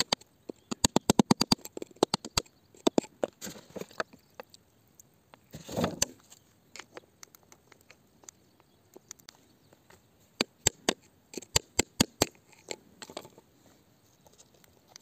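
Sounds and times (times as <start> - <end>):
tool scraping rock: 5.5 - 7.0.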